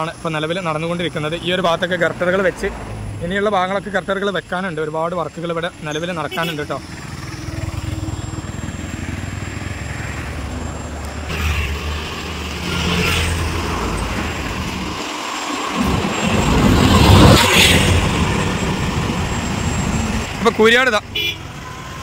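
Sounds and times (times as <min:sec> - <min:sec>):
traffic engine rumble: 0:00.0 - 0:22.0
vehicle passing close by: 0:06.8 - 0:20.4.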